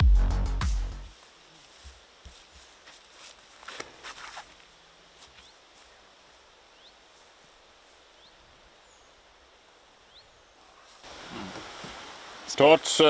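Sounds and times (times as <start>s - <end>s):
small bird chirping: 10.0s - 10.6s.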